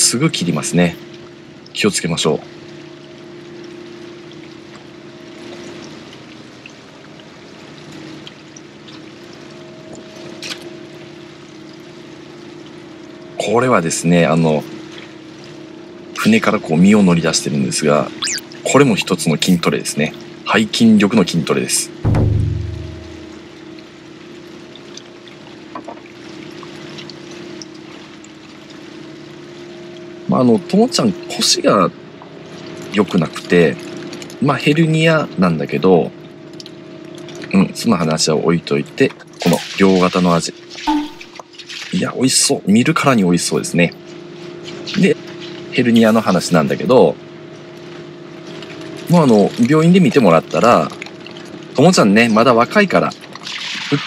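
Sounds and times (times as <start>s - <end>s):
boat engine humming: 0.0s - 34.4s, 40.5s - 41.7s
sharp splash: 22.1s - 23.6s, 39.4s - 42.0s
water pouring and splashing: 38.9s - 42.3s, 48.4s - 54.0s.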